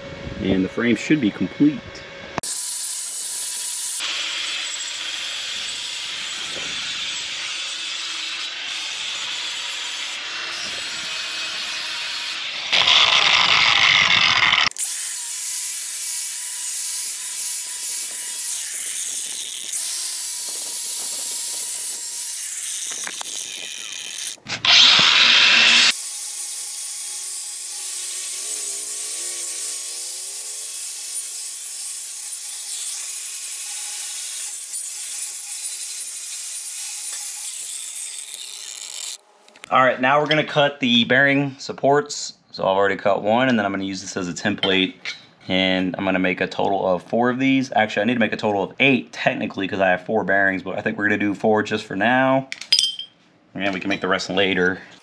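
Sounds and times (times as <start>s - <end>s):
angle grinder grinding steel: 2.4s - 39.7s.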